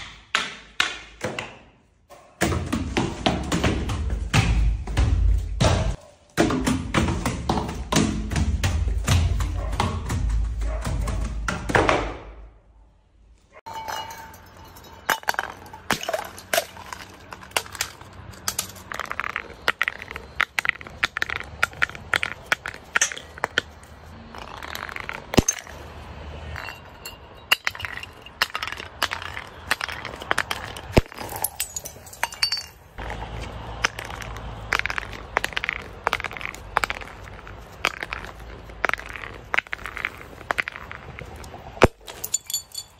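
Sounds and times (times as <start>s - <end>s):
glass breaking: 13.7s - 18.9s, 26.6s - 32.9s, 41.8s - 42.9s
glass bottles clinking on concrete: 13.7s - 23.8s, 24.4s - 25.8s, 26.5s - 33.2s, 41.8s - 42.9s.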